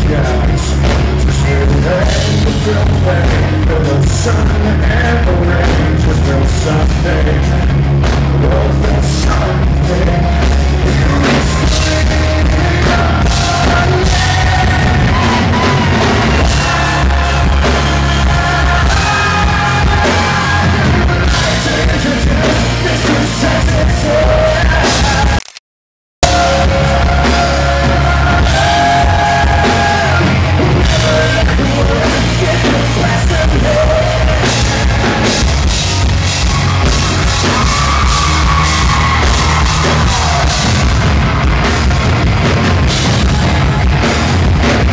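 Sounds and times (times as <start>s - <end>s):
electric guitar: 0.0s - 25.4s
live rock band playing: 0.0s - 25.4s, 26.2s - 44.9s
man singing and shouting: 0.0s - 25.4s, 26.2s - 35.8s.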